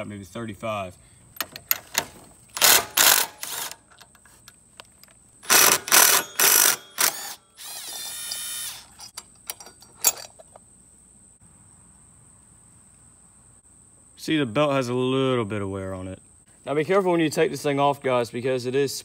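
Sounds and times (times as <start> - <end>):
crickets trilling: 4.5 - 19.0
metal hand tools ratcheting: 5.4 - 10.4.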